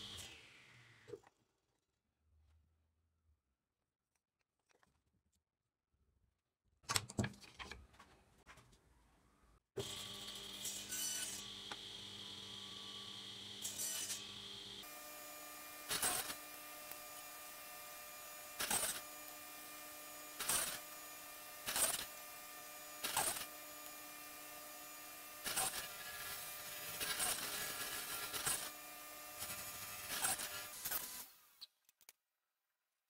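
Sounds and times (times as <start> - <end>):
table saw humming: 9.8 - 31.3
saw blade cutting wood: 9.8 - 31.6.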